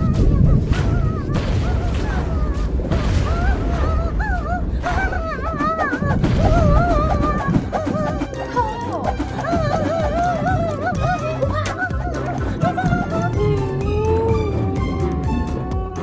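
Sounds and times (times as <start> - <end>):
heavy low rumble: 0.0 - 16.0
high-pitched cartoon vocalizations: 4.8 - 16.0.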